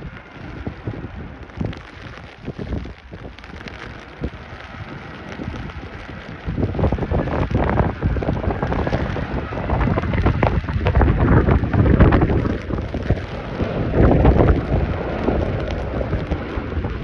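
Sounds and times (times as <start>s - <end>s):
jet roar overhead: 0.0s - 17.0s
wind buffeting microphone: 0.0s - 17.0s.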